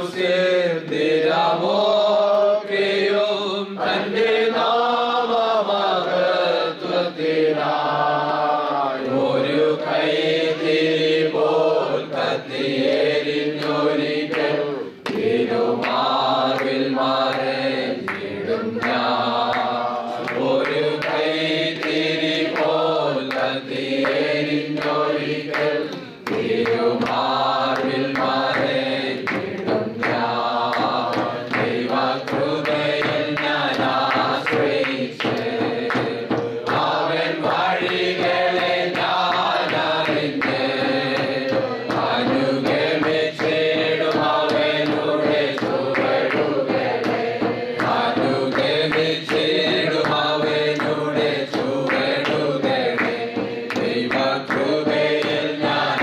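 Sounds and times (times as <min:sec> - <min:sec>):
person singing worship song: 0:00.0 - 0:56.0
musical accompaniment with beat: 0:06.8 - 0:56.0.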